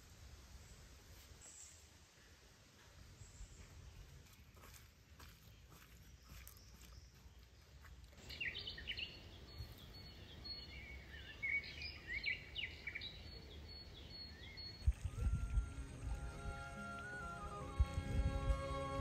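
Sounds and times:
small birds chirping: 3.1 - 17.2
music: 15.6 - 19.0.

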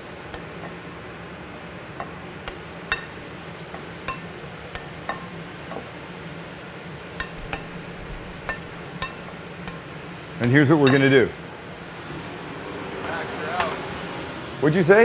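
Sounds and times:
metal tongs clinking on bowl: 4.1 - 5.5, 7.2 - 11.1.

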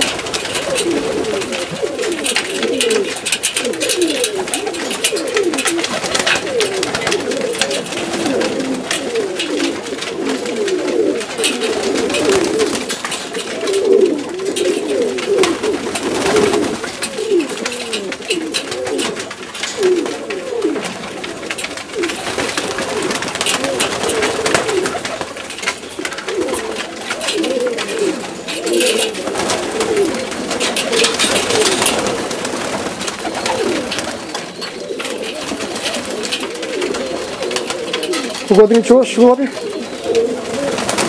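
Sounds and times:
pigeons cooing: 0.0 - 41.0
rustles: 0.0 - 41.0.

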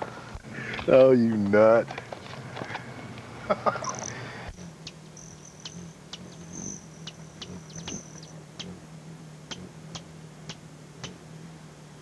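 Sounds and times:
hummingbird chip calls: 2.9 - 11.6
thin high-pitched buzz: 3.0 - 12.0.

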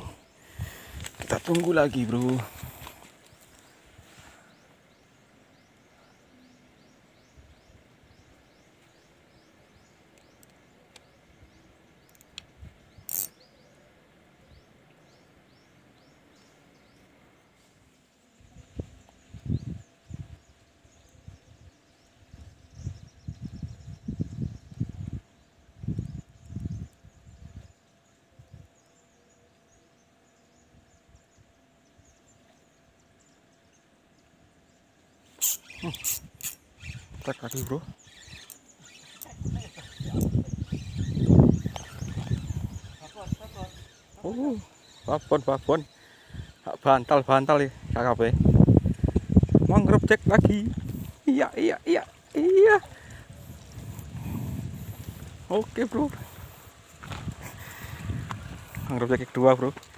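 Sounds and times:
high downward animal chirps: 13.0 - 13.5, 35.3 - 47.1.

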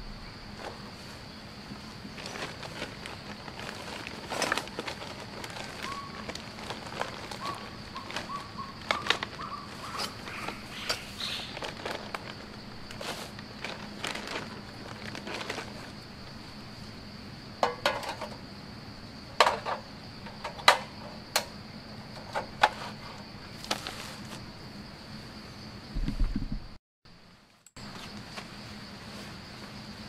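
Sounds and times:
camp cooking gear clattering: 2.2 - 16.0, 17.6 - 18.5, 19.4 - 23.8.

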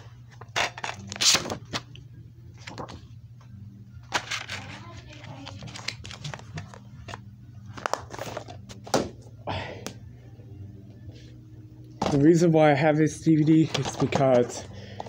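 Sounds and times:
steady low hum: 0.0 - 15.0
plastic case clicking and rustling: 13.4 - 15.0.

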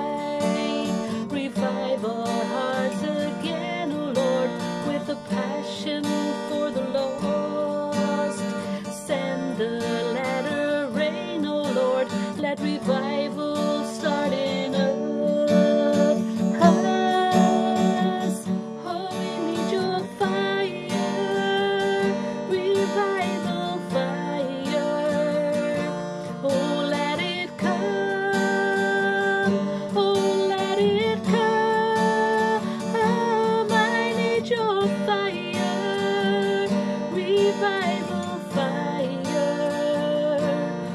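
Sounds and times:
acoustic guitar strumming: 0.0 - 40.9
woman singing: 0.0 - 40.9.

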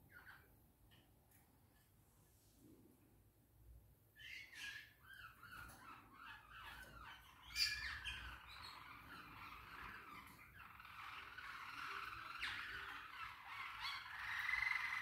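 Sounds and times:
songbirds chirping and singing: 4.2 - 15.0.

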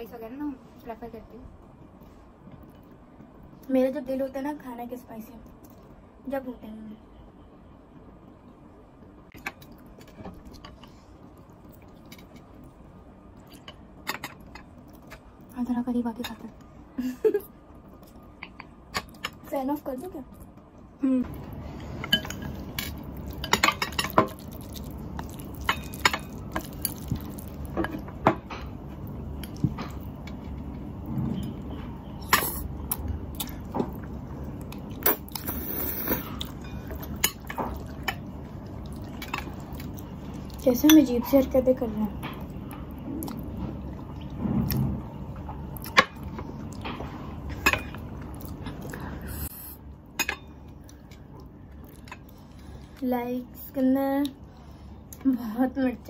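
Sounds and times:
noodles slurped and chewed: 34.8 - 40.6.

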